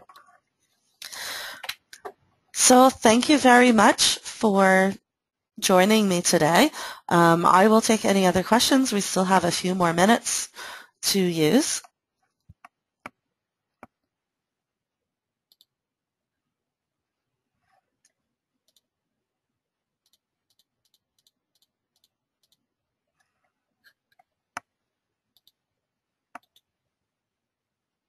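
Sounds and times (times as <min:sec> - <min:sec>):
computer mouse clicks: 0:15.5 - 0:15.7, 0:18.0 - 0:18.9, 0:20.0 - 0:24.7, 0:25.3 - 0:25.6, 0:26.3 - 0:26.7.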